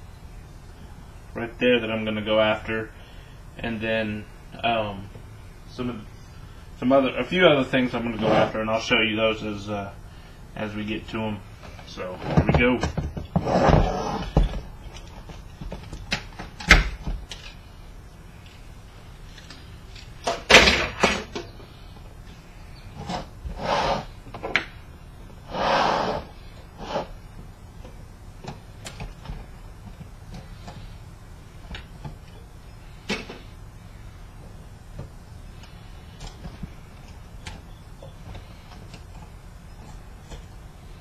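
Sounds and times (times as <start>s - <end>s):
scraping on metal: 8.1s - 8.6s, 12.0s - 14.5s, 25.5s - 27.2s.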